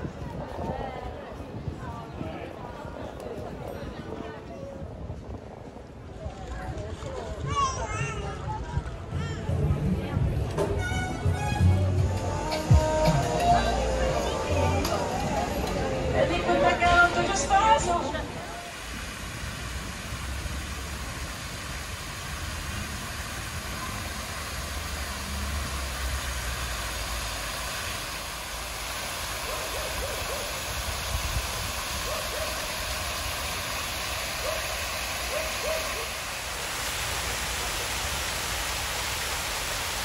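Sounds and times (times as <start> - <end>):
fountain water splashing: 13.2 - 40.0.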